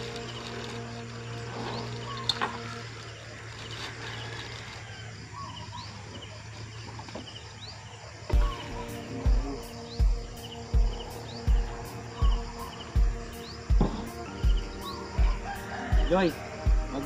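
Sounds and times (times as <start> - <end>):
background music: 0.0 - 3.9, 8.3 - 17.0
high rising bird chirps: 8.3 - 17.0
low thump: 13.0 - 14.7.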